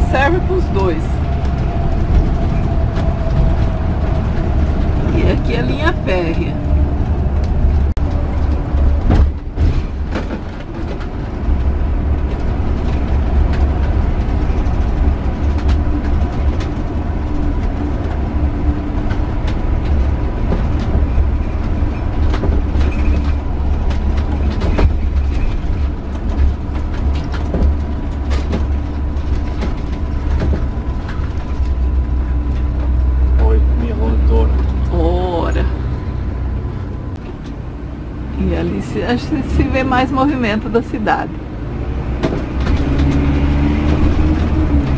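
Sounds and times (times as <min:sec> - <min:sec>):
engine and road rumble: 0:00.0 - 0:44.9
rattles and knocks: 0:01.3 - 0:33.4, 0:41.9 - 0:44.9.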